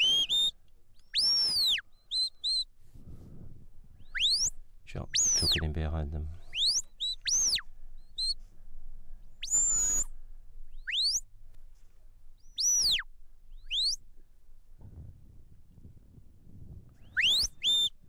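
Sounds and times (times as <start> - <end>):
shepherd's whistles: 0.0 - 2.7, 4.0 - 5.6, 6.5 - 8.4, 9.4 - 10.1, 10.8 - 11.2, 12.4 - 14.0, 17.0 - 18.0.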